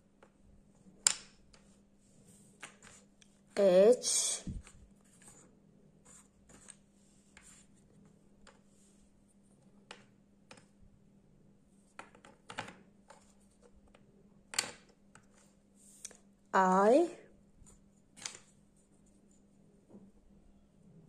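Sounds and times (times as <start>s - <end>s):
wooden puzzle pieces tapping: 1.0s - 1.7s, 2.6s - 3.0s, 11.9s - 15.4s.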